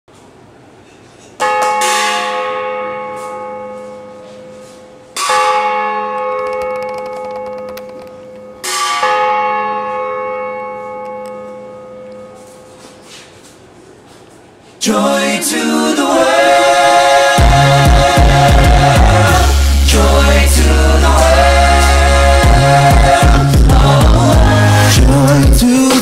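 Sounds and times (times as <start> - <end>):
large bell ringing: 1.4 - 12.8.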